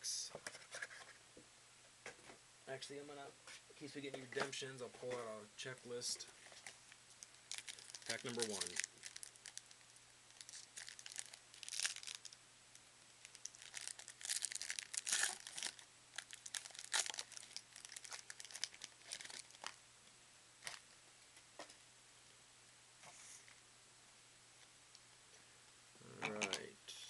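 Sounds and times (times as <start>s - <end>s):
foil wrapper tearing and crinkling: 6.6s - 12.4s, 13.2s - 19.8s.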